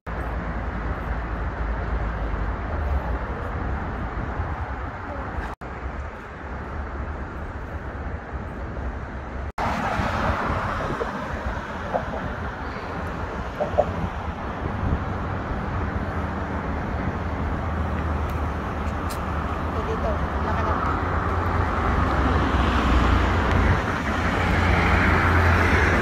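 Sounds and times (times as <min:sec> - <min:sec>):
city traffic rumble: 0:00.0 - 0:26.0.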